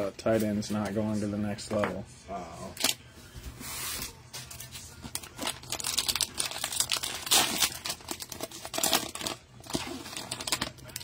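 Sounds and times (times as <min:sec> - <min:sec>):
cellophane wrapper crinkling: 0:05.1 - 0:11.0
wrapper ripping: 0:05.1 - 0:11.0.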